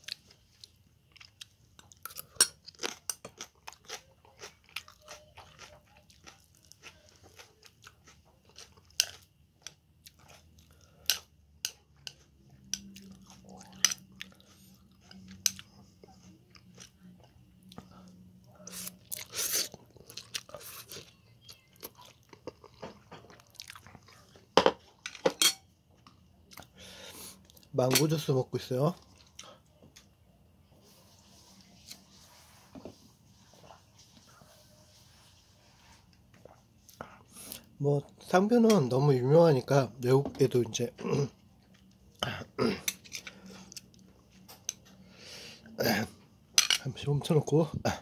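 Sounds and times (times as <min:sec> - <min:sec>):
person chewing noodles: 0:00.0 - 0:24.6, 0:25.9 - 0:27.7, 0:29.0 - 0:30.2.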